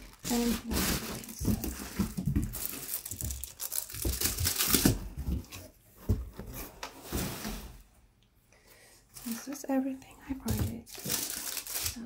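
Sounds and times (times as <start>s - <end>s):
bubble wrap rustling and crinkling: 0.0s - 5.8s, 9.1s - 12.0s.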